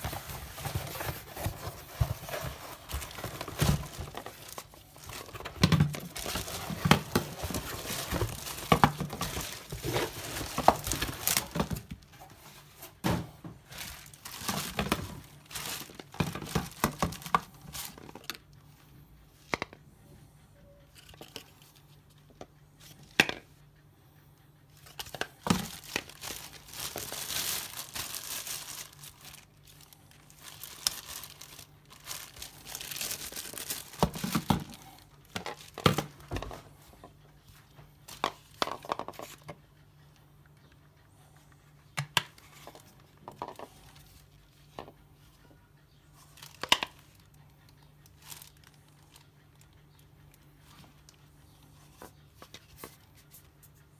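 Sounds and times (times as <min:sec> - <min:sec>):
plastic bags crinkling: 0:00.0 - 0:12.0, 0:13.6 - 0:18.4, 0:24.9 - 0:36.2, 0:48.1 - 0:49.2.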